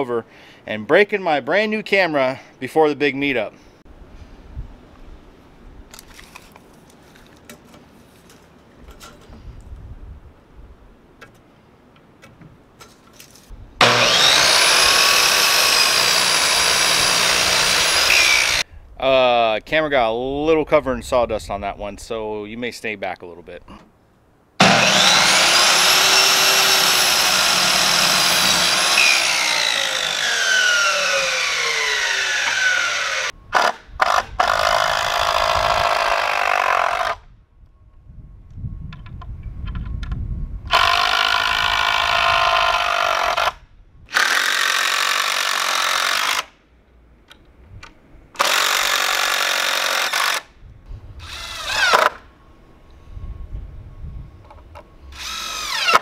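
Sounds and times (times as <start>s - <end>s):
cordless drill driving screws: 13.8s - 18.6s, 24.6s - 37.2s, 40.7s - 46.5s, 48.4s - 50.4s, 55.2s - 56.0s
miter saw cutting wood: 13.8s - 18.6s, 24.6s - 37.2s, 40.7s - 46.5s, 48.4s - 50.4s, 55.1s - 56.0s.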